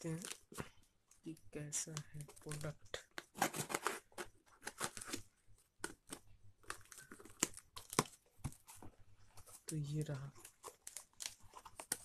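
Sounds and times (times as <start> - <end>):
knife cutting packing tape: 3.3 - 5.2.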